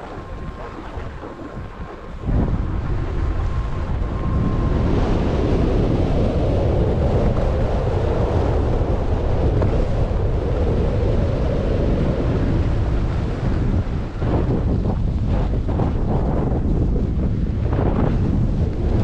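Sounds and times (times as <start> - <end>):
wind rushing over microphone: 0.0 - 19.0.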